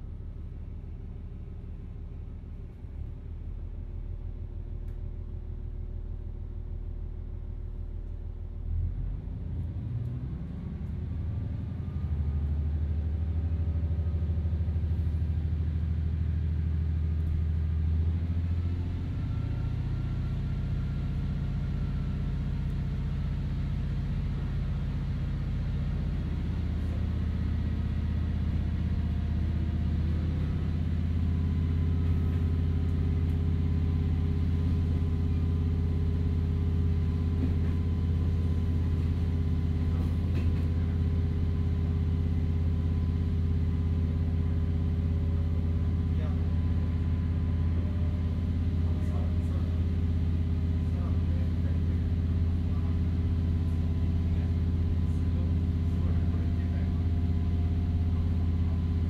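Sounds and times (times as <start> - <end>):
railcar diesel engine: 0.0 - 59.0.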